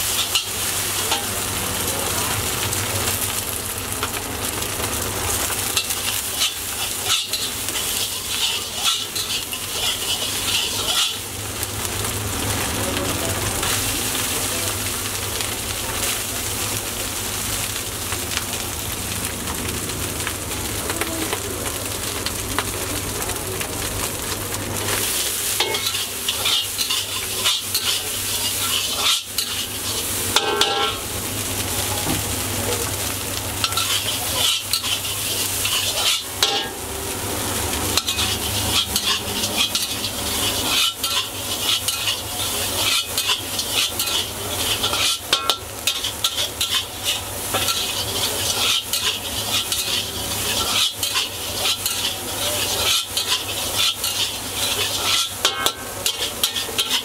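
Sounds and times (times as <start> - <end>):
rice sizzling in a wok: 0.0 - 57.0
ladle scraping a wok: 5.4 - 11.9, 24.8 - 31.0, 33.6 - 36.8, 37.5 - 57.0.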